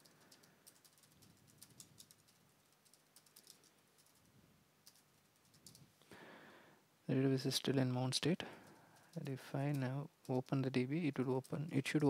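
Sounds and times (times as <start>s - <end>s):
faint computer keyboard typing: 0.0s - 6.0s, 8.4s - 12.0s.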